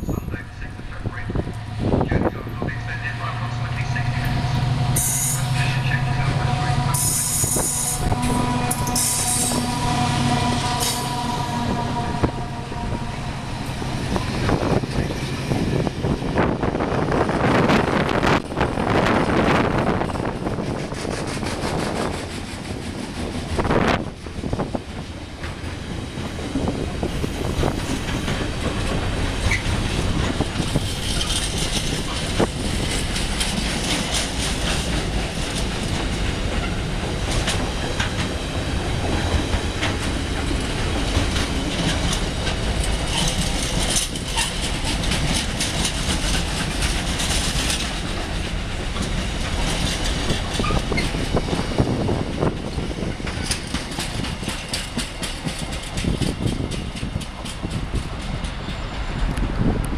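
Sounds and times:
train wheels rumbling on rails: 0.0 - 59.9
wheels clicking over rail joints: 20.4 - 59.9.

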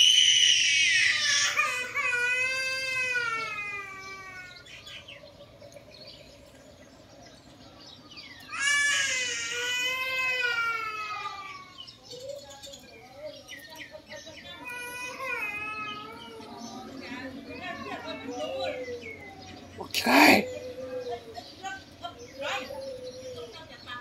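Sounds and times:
baby monkey high-pitched cries: 0.0 - 5.0, 8.4 - 12.4, 14.5 - 21.3.

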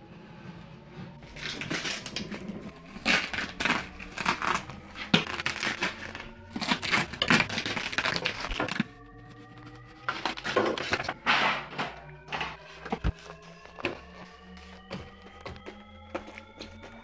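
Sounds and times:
tape tearing: 1.2 - 11.3
plastic wrapping crinkling: 1.2 - 17.0.

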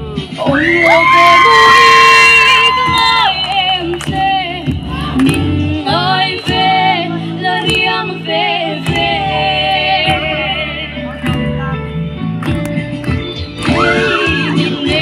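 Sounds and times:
hand claps keeping beat: 2.9 - 5.6, 6.3 - 6.8, 7.6 - 8.0, 8.8 - 9.2, 11.2 - 11.6, 12.4 - 13.8
group singing folk song: 3.0 - 10.9, 13.7 - 15.0.

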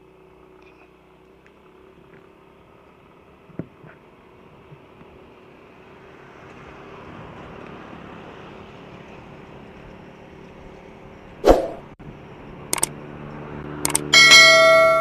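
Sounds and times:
motorcycle engine running: 0.0 - 5.6
road and wind noise: 0.0 - 15.0.

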